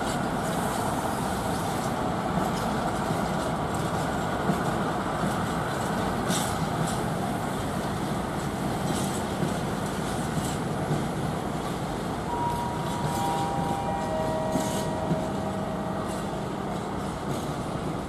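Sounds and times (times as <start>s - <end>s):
diesel locomotive engine rumble: 0.0s - 18.0s
thin high tones: 12.3s - 16.4s.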